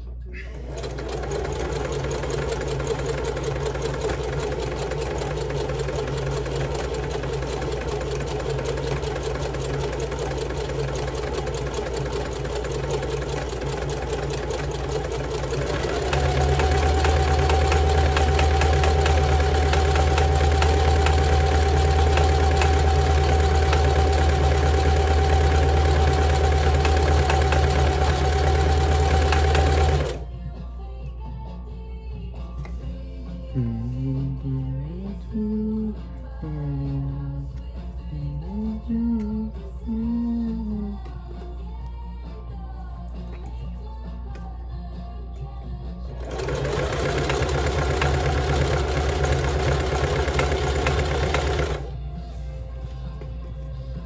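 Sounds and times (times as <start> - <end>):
sewing machine running: 0.5 - 30.2, 46.1 - 51.9.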